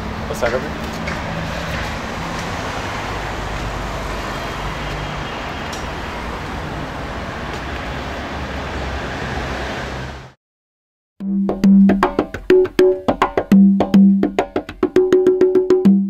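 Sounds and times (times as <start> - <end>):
city street traffic: 0.0 - 10.4.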